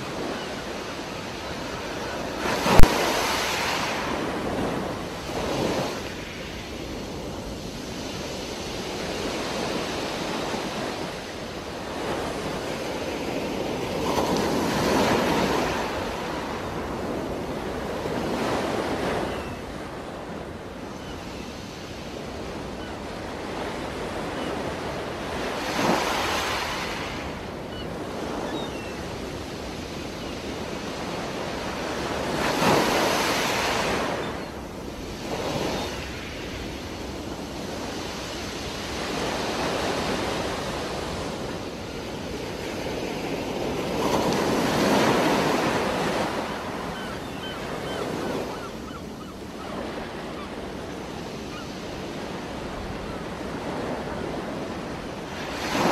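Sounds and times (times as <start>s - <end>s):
underwater rushing water: 2.6s - 3.6s.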